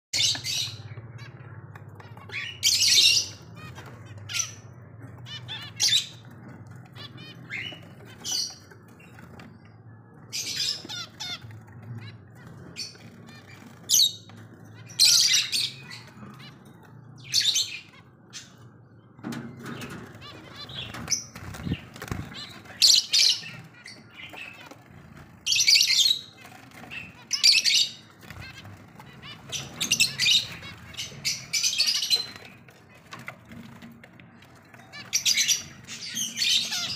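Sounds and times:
finches chirping: 25.5s - 33.0s, 34.3s - 36.9s.

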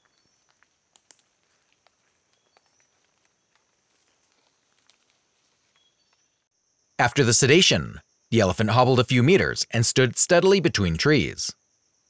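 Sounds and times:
footsteps on dry leaves: 0.0s - 5.9s.

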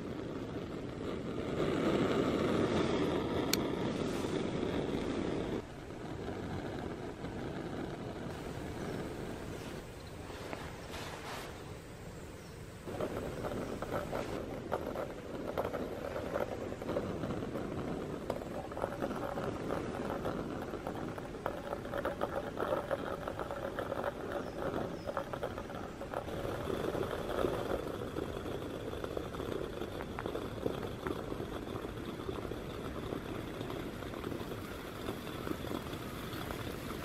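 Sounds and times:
gas stove burner running: 0.0s - 37.0s
water bubbling and popping in mug: 8.3s - 10.8s, 12.8s - 37.0s.

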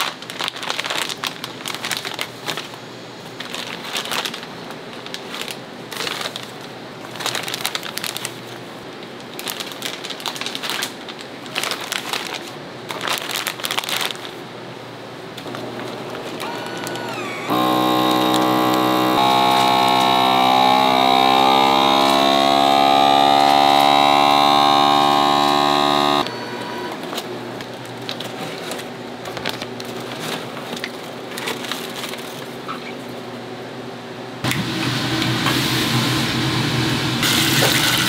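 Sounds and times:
electric motor humming: 16.4s - 27.0s.

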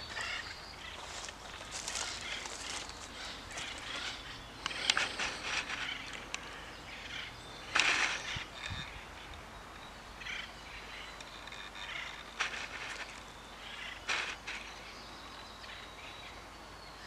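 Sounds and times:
footsteps crunching on leaves: 0.0s - 4.2s.

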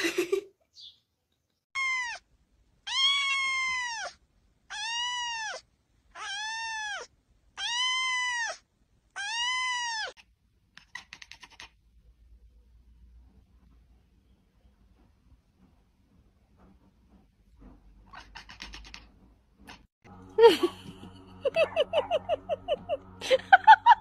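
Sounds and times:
kitten meowing: 1.8s - 2.2s, 2.9s - 5.6s, 6.2s - 8.6s, 9.2s - 10.2s.

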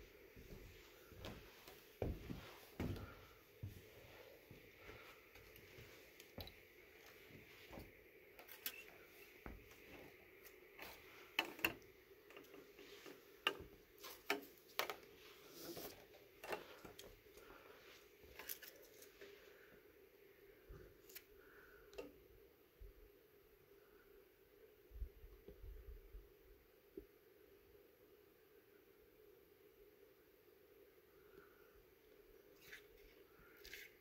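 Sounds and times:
footsteps on wooden planks: 0.4s - 6.5s.

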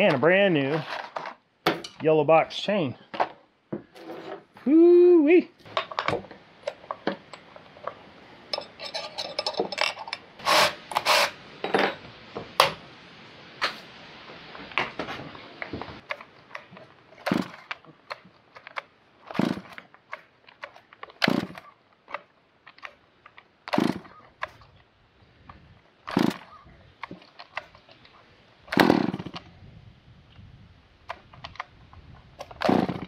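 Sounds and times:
metal tools clinking on wood: 5.7s - 12.1s.

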